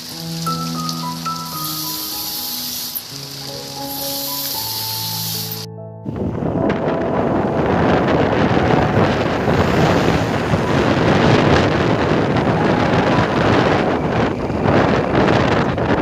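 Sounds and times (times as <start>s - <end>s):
wind buffeting microphone: 6.0s - 16.0s.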